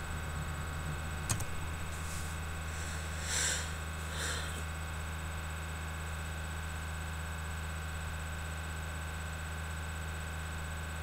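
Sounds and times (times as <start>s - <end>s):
steady low hum: 0.0s - 8.5s
person sniffing through nose: 2.0s - 4.6s.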